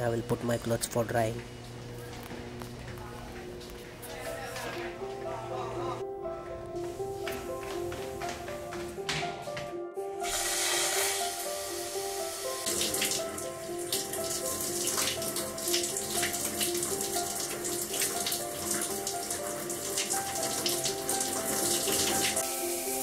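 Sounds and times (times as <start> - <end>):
background music: 0.0 - 23.0
shower water spraying and splashing: 10.2 - 23.0.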